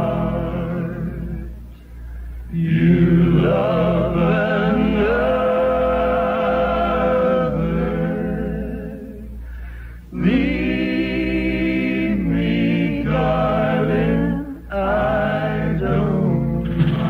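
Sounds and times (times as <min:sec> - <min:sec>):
vocal group singing in harmony: 0:00.0 - 0:17.0
musical backing: 0:10.1 - 0:17.0.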